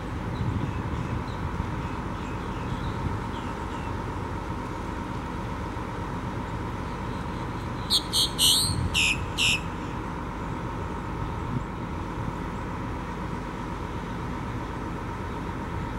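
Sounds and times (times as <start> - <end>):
bus engine hum: 0.0 - 15.9
bird calling high notes: 7.8 - 10.0.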